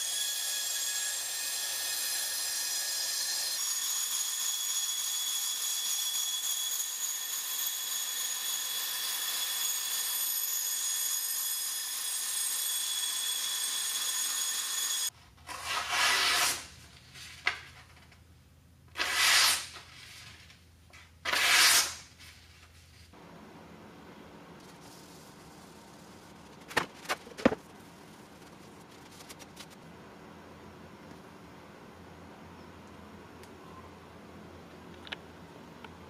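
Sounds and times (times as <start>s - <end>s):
paper rustling: 24.6s - 29.8s.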